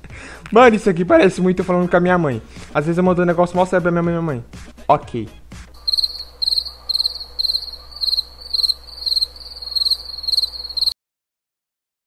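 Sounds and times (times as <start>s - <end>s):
crickets chirping: 5.8s - 11.0s.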